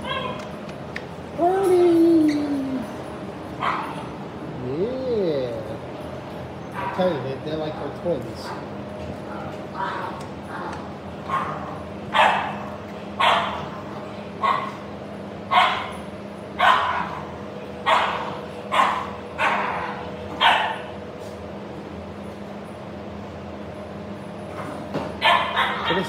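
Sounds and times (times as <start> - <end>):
dog barking: 3.6 - 4.0, 6.8 - 7.1, 11.3 - 13.7, 14.4 - 14.8, 15.5 - 15.9, 16.6 - 20.9, 25.2 - 26.0.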